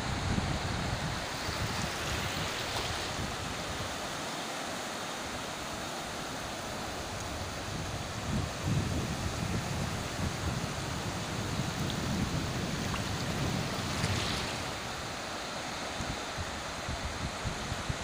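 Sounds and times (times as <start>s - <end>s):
wind buffeting microphone: 0.0s - 4.0s, 7.0s - 15.2s, 16.0s - 18.0s
surf breaking on sandy beach: 5.2s - 17.4s.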